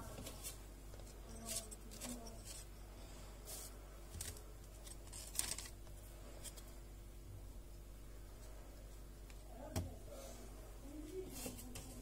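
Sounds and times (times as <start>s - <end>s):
parchment paper crinkling: 0.0s - 2.7s, 3.5s - 6.8s.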